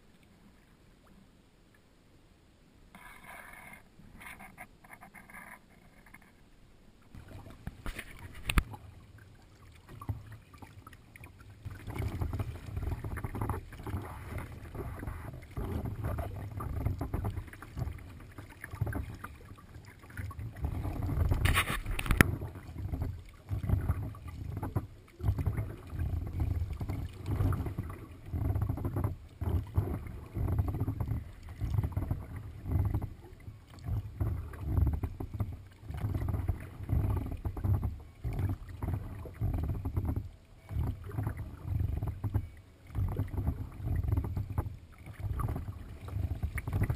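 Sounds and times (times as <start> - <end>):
water slapping against kayak hull: 7.1 - 46.9.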